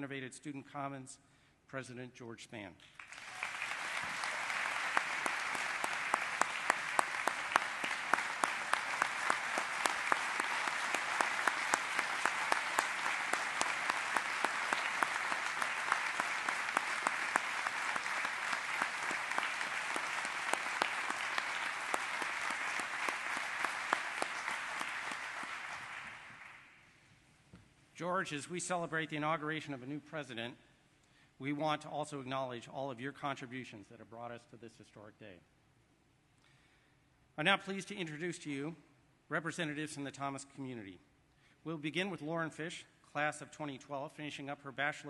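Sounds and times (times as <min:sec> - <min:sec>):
audience applauding: 0:03.0 - 0:26.8.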